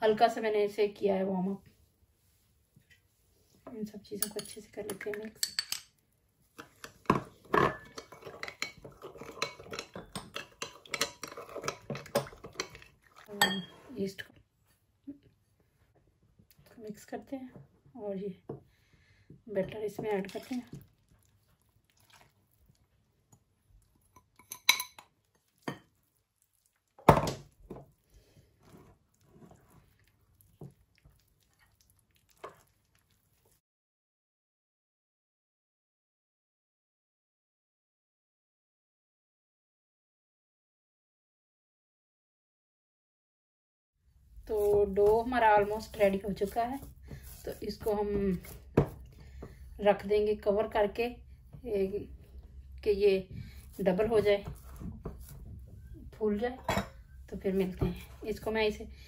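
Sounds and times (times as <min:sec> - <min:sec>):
metal spoon clinking in glass bowl: 0:04.2 - 0:05.9, 0:07.6 - 0:12.8, 0:13.4 - 0:13.8, 0:24.2 - 0:25.1.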